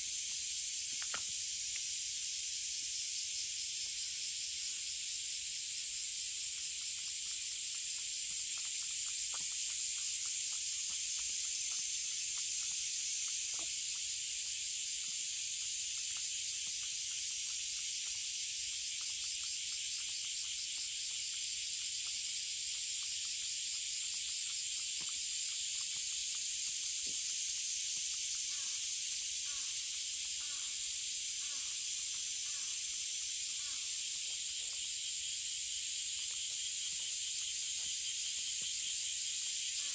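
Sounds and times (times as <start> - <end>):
cicadas buzzing: 0.0 - 39.9
faint clicks: 0.9 - 1.9.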